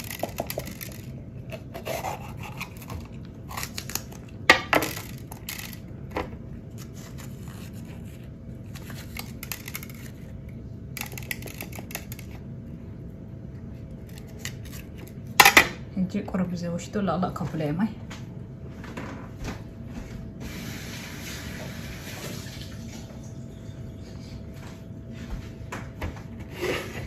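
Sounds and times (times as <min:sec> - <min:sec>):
knife crunching through pepper: 0:00.0 - 0:05.8.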